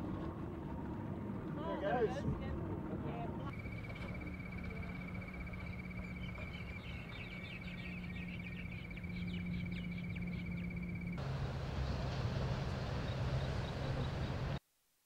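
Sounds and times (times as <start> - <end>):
low steady hum: 0.0 - 14.6
high pulsing chirp: 3.5 - 11.2.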